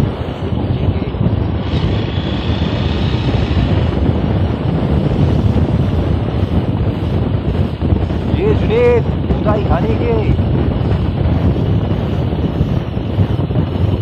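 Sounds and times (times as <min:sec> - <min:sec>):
motorcycle engine running: 0:00.0 - 0:08.4
wind buffeting microphone: 0:00.0 - 0:14.0.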